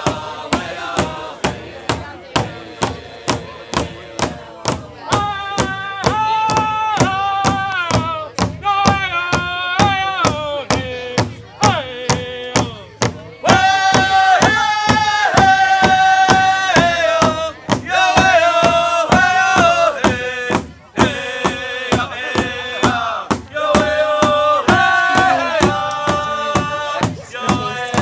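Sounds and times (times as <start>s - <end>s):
steady drumbeat: 0.0s - 28.0s
chanted singing: 9.2s - 28.0s.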